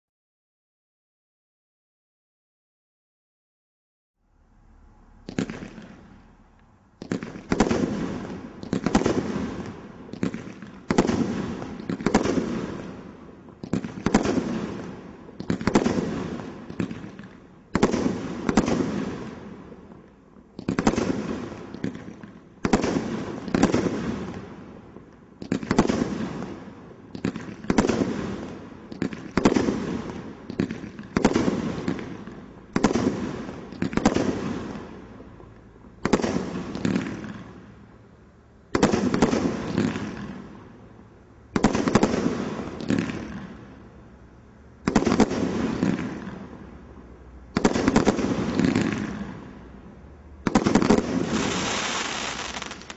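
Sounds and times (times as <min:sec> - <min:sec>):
firework bangs with crackle: 0:05.2 - 0:06.2, 0:07.0 - 0:19.9, 0:20.5 - 0:35.2, 0:36.0 - 0:37.6, 0:38.7 - 0:40.8, 0:41.6 - 0:43.7, 0:44.8 - 0:46.7, 0:47.5 - 0:49.5, 0:50.4 - 0:52.9.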